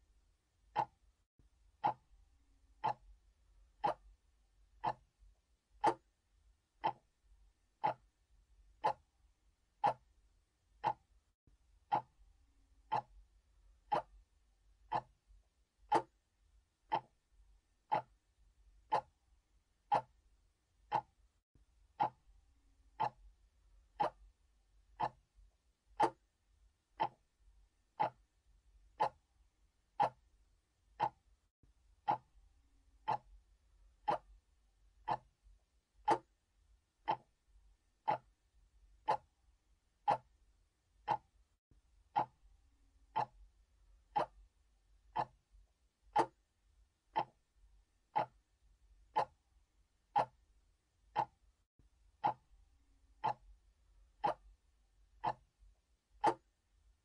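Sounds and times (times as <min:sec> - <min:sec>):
mechanical clock ticking: 0:00.7 - 0:01.0, 0:01.8 - 0:02.1, 0:02.8 - 0:03.2, 0:03.8 - 0:04.1, 0:04.8 - 0:05.1, 0:05.8 - 0:06.1, 0:06.8 - 0:07.2, 0:07.8 - 0:09.1, 0:09.8 - 0:10.2, 0:10.8 - 0:11.1, 0:11.9 - 0:12.2, 0:12.8 - 0:13.2, 0:13.9 - 0:14.2, 0:14.9 - 0:15.2, 0:15.9 - 0:16.2, 0:16.9 - 0:17.2, 0:17.9 - 0:18.2, 0:18.8 - 0:19.2, 0:19.8 - 0:20.2, 0:20.8 - 0:21.2, 0:22.0 - 0:22.3, 0:22.9 - 0:23.3, 0:24.0 - 0:24.3, 0:25.0 - 0:25.3, 0:26.0 - 0:26.3, 0:27.0 - 0:27.3, 0:28.0 - 0:28.3, 0:28.9 - 0:29.3, 0:29.9 - 0:30.3, 0:30.9 - 0:31.3, 0:32.0 - 0:32.4, 0:33.0 - 0:33.4, 0:34.0 - 0:34.4, 0:35.0 - 0:35.4, 0:36.0 - 0:36.4, 0:37.0 - 0:37.4, 0:38.0 - 0:38.4, 0:39.0 - 0:39.4, 0:40.0 - 0:40.4, 0:41.0 - 0:41.4, 0:42.1 - 0:42.4, 0:43.1 - 0:43.5, 0:44.1 - 0:44.5, 0:45.1 - 0:45.4, 0:46.1 - 0:46.4, 0:47.1 - 0:47.4, 0:48.1 - 0:48.5, 0:49.1 - 0:49.4, 0:50.1 - 0:50.4, 0:51.1 - 0:51.4, 0:52.2 - 0:52.5, 0:53.2 - 0:53.5, 0:54.2 - 0:54.5, 0:55.2 - 0:55.5, 0:56.2 - 0:56.5.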